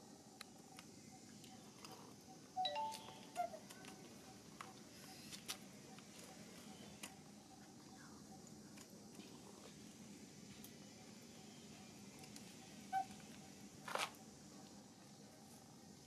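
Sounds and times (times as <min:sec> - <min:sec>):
high chirps: 0:02.6 - 0:03.6.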